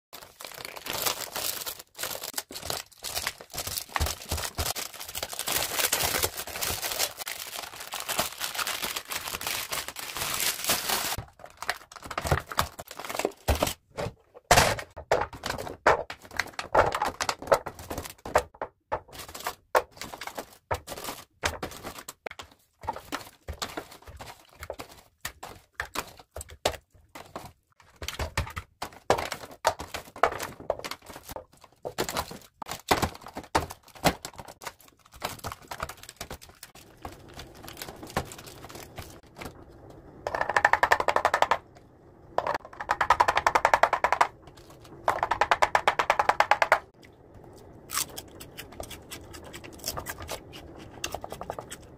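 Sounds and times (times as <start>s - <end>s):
plastic film crinkling: 0.2s - 13.8s, 30.4s - 39.4s.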